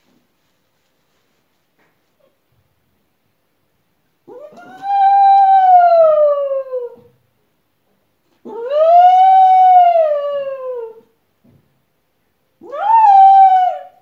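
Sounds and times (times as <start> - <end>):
small dog howling: 4.3 - 7.1, 8.5 - 11.1, 12.6 - 14.0.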